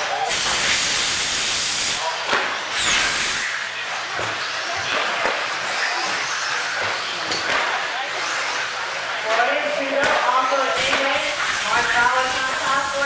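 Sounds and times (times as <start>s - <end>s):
rc truck motors whining: 2.6s - 9.2s.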